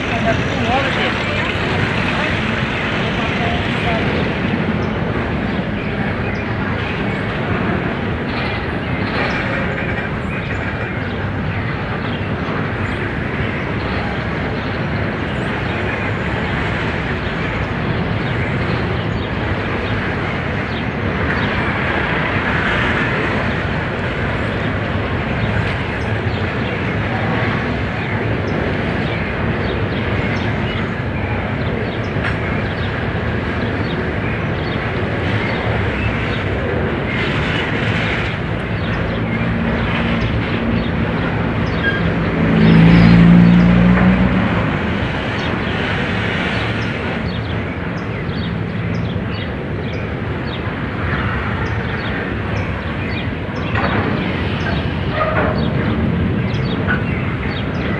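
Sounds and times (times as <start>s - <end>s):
steel wheels running on rails: 0.0s - 42.9s.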